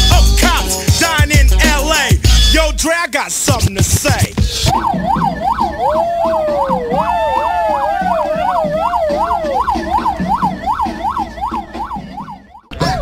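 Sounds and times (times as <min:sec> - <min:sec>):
hip-hop beat: 0:00.0 - 0:13.0
police siren yelping: 0:04.4 - 0:12.7
police siren wailing: 0:04.6 - 0:12.7.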